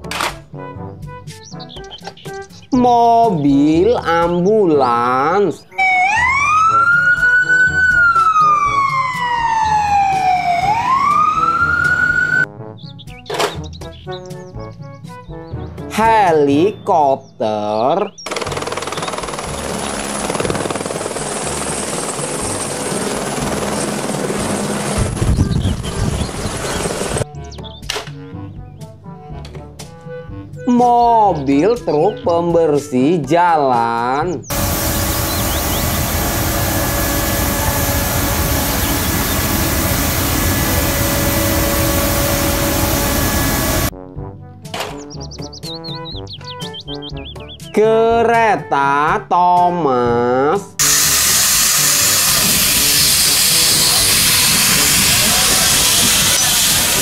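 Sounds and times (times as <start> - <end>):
helicopter rotor chop: 18.2 - 27.2, 34.5 - 43.9, 50.8 - 57.0
road sweeper brushes hissing: 34.5 - 43.9, 50.8 - 57.0.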